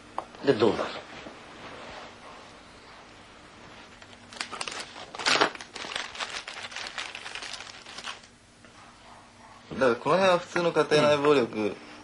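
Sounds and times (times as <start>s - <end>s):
paper crinkling: 3.9s - 8.3s.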